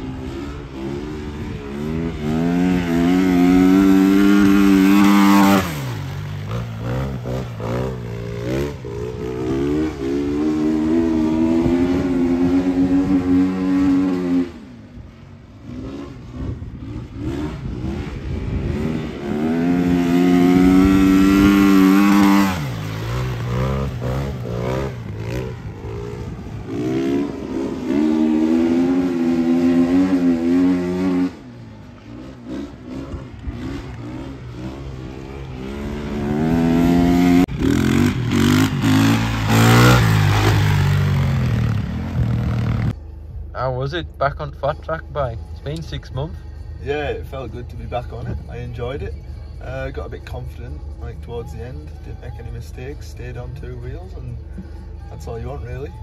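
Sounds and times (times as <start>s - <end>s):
motorcycle engine revving: 0.0s - 43.0s.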